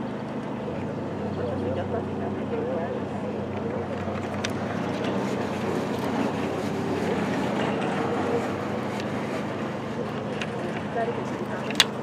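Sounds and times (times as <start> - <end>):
steady low hum: 0.0 - 12.0
even rushing noise: 3.0 - 11.7.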